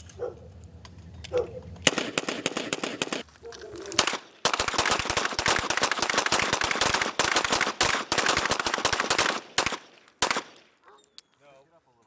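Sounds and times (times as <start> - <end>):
gunshots volley: 3.9 - 10.6.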